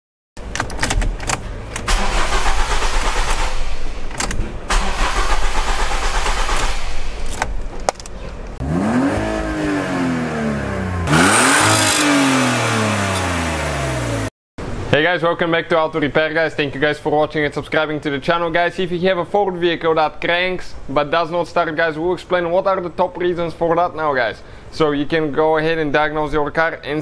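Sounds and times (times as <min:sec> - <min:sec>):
car engine cranking on starter: 0:00.4 - 0:08.2
car engine revving: 0:01.2 - 0:07.5, 0:08.6 - 0:14.3.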